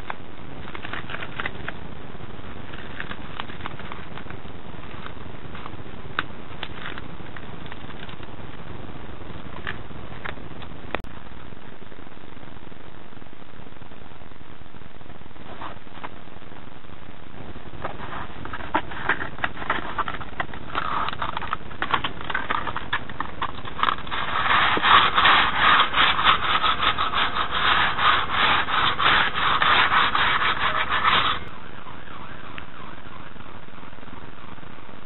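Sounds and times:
sandpaper rubbing metal: 22.3 - 31.5.

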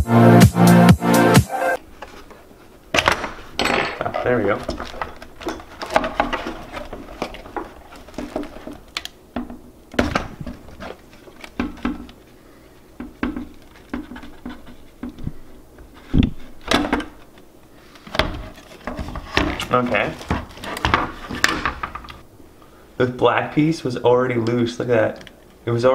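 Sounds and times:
plastic clicks and creaks: 4.0 - 9.2, 24.5 - 25.6.

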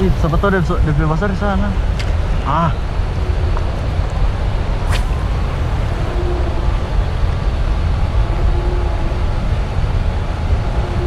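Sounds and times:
steady low rumble: 3.0 - 10.8
sharp swish or click: 4.9 - 6.1.

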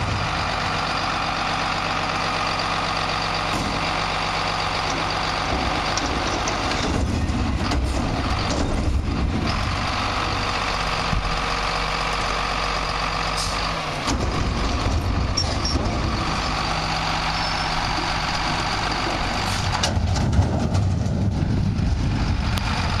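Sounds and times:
garbage truck engine running: 0.0 - 23.0.

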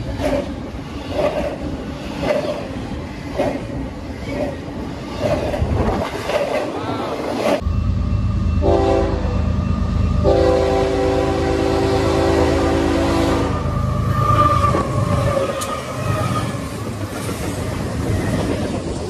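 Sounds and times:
freight train rolling past: 0.0 - 19.0
train air horn blasts: 8.6 - 9.5, 10.2 - 16.5.

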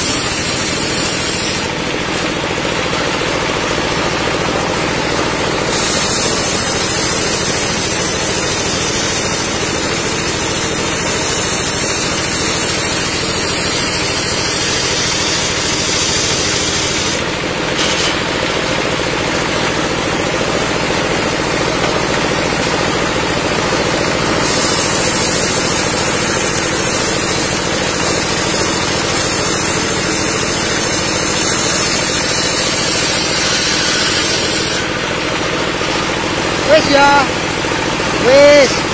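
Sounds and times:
saw blade cutting wood: 0.0 - 38.9
saw engine running: 0.0 - 38.9.

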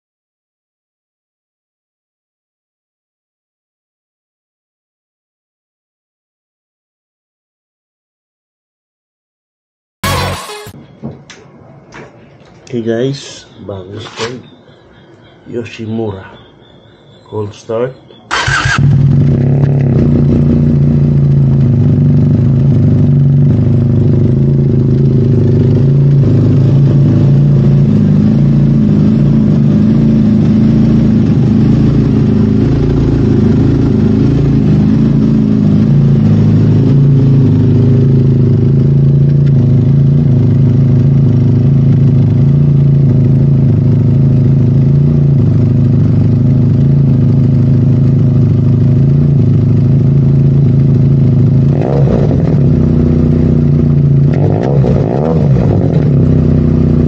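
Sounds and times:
motorcycle engine idling: 14.4 - 51.8, 52.4 - 57.0.

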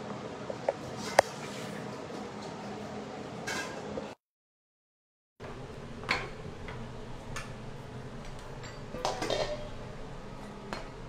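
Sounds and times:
kitchenware clinking: 3.4 - 3.9, 6.0 - 7.6, 8.2 - 9.8
low background hum: 5.4 - 11.0.

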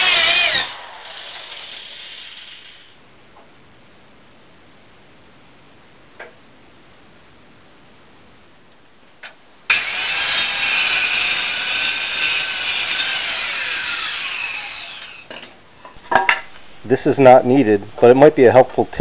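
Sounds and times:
circular saw cutting wood: 0.0 - 2.3, 9.7 - 15.3
saw motor winding down whine: 0.0 - 2.3, 9.7 - 15.3.

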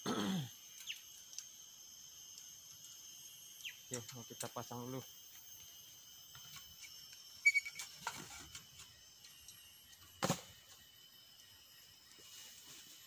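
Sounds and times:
forest insects droning: 0.0 - 13.0
high squeak: 7.4 - 7.9.

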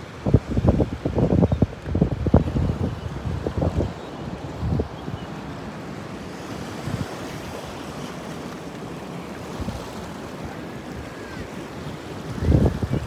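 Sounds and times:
wind gusts on microphone: 0.0 - 13.0
waves washing against rocks: 3.2 - 13.0.

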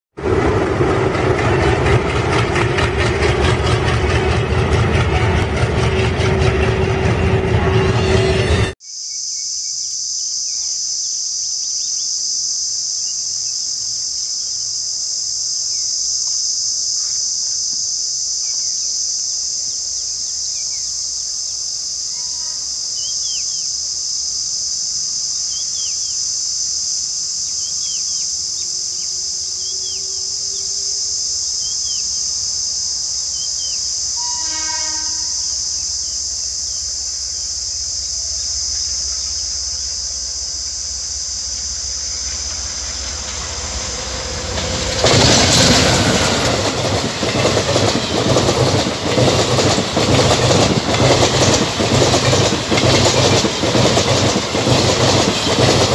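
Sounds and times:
diesel locomotive passing: 0.1 - 8.8, 29.8 - 55.9
distant locomotive hum: 0.2 - 8.8, 27.0 - 55.9
insects droning: 0.2 - 55.9
bird chirps: 33.3 - 36.9.

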